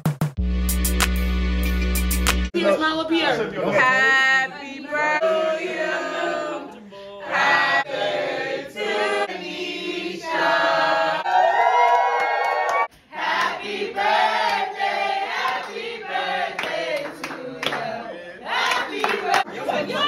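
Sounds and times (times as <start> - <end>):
group of people singing: 3.7 - 11.4, 13.1 - 20.0.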